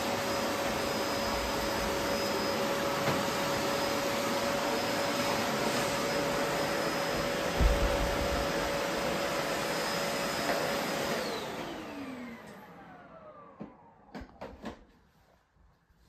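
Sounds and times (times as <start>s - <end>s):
vacuum cleaner whine: 0.0s - 15.6s.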